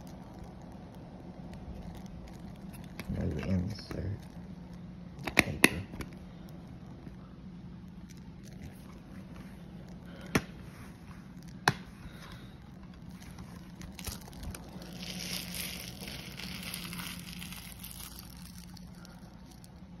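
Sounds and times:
plastic crinkling and rustling: 0.0 - 4.9, 6.0 - 20.0
faint steady hum: 0.0 - 20.0.

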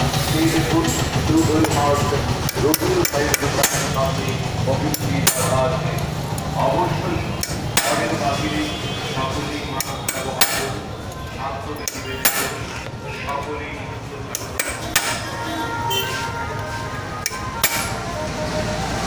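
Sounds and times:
hand tool clinking on metal bolts: 17.2 - 18.0.

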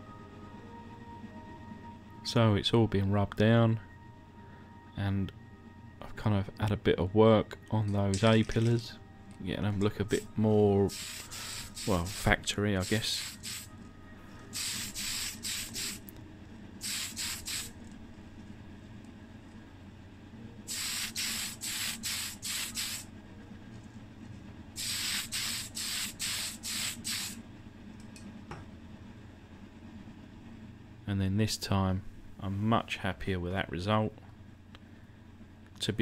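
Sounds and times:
steady low hum: 0.0 - 36.0
spray paint hissing in puffs: 10.9 - 13.7, 14.5 - 16.0, 16.8 - 17.7, 20.7 - 23.1, 24.8 - 27.4.

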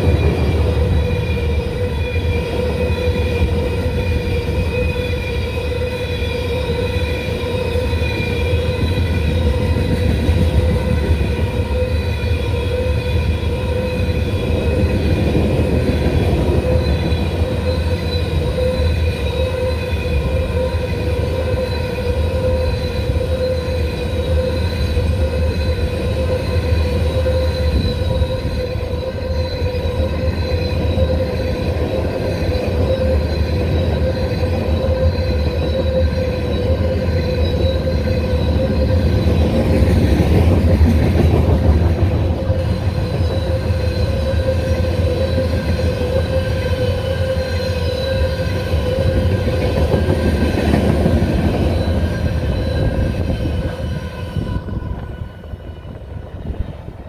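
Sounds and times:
high-pitched wheel squeal: 0.0 - 56.9
train wheels rumbling on rails: 0.0 - 57.0.

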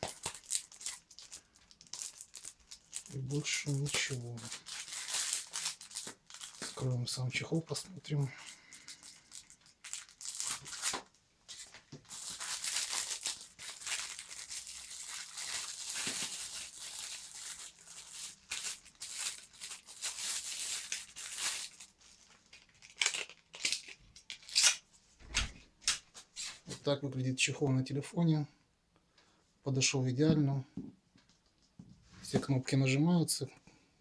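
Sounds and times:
plastic bag crinkling and tearing: 0.0 - 24.8.

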